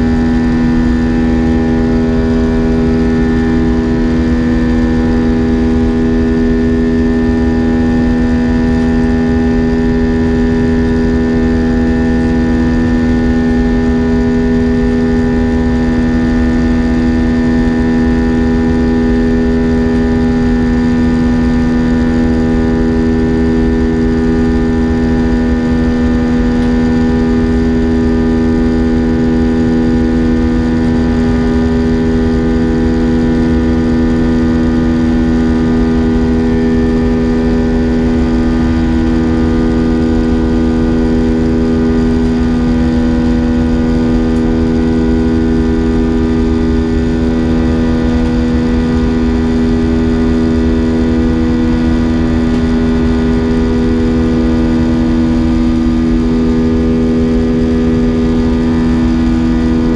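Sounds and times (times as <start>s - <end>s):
air rushing along fuselage: 0.0s - 59.9s
jet engines humming: 0.0s - 59.9s.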